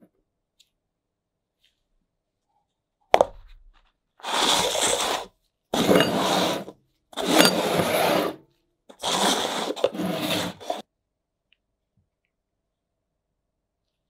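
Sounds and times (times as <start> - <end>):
objects scraping across wooden bench: 4.2 - 10.8.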